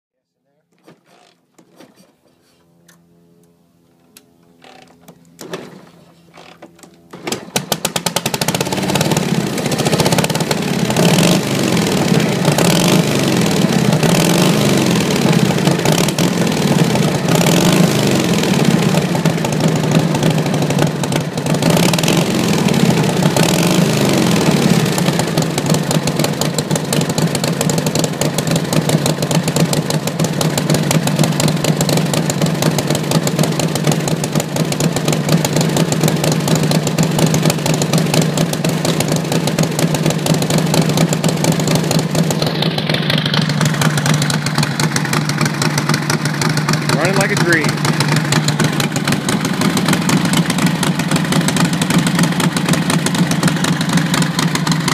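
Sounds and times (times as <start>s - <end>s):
motorcycle engine revving and idling: 6.2s - 54.9s.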